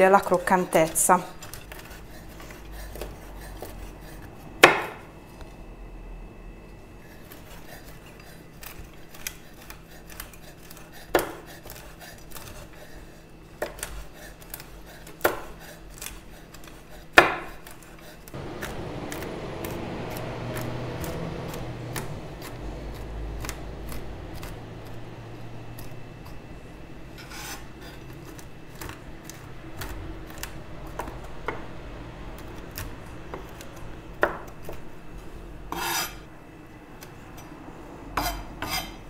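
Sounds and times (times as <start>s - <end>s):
knife chopping nuts on wooden board: 4.6s - 5.0s, 9.6s - 12.6s, 13.6s - 25.0s, 32.7s - 34.8s.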